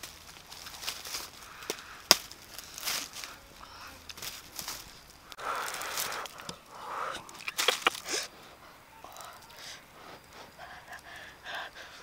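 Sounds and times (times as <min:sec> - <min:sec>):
burnt skin crackling and snapping: 0:00.0 - 0:11.9
handling and eating sounds: 0:07.2 - 0:08.3.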